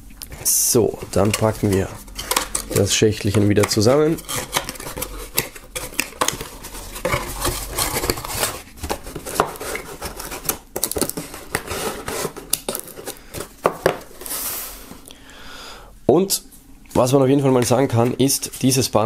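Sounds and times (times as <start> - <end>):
scraping rustle of cardboard: 0.3 - 10.6, 11.2 - 15.0
cardboard box being folded: 0.3 - 14.9.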